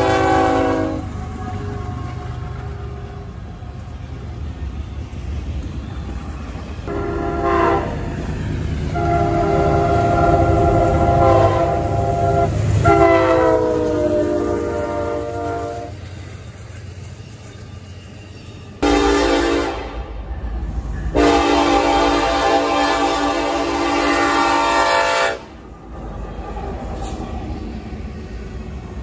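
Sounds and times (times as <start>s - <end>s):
locomotive air horn blasts: 0.0s - 2.2s, 6.9s - 8.1s, 8.9s - 16.0s, 18.8s - 20.1s, 21.1s - 25.6s
low rumble of passing train: 0.0s - 29.0s.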